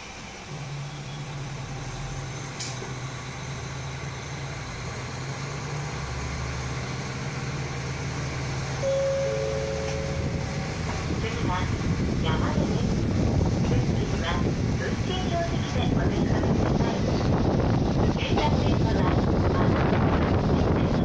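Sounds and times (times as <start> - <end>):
railcar engine hum: 0.0 - 21.0
steady high whine: 8.7 - 15.8.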